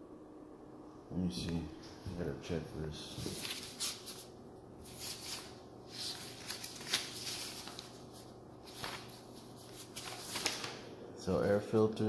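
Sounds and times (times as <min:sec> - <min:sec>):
low steady hum: 0:00.0 - 0:12.0
faint rustling and scuffing: 0:03.0 - 0:10.5.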